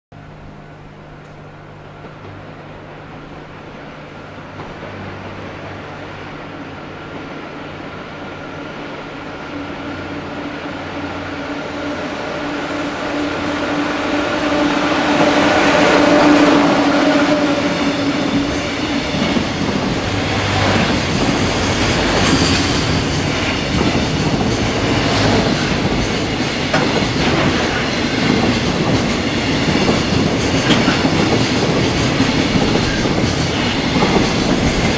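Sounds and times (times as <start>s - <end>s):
electric locomotive passing: 0.2s - 34.9s
wheels clacking over rail joints: 15.0s - 34.9s.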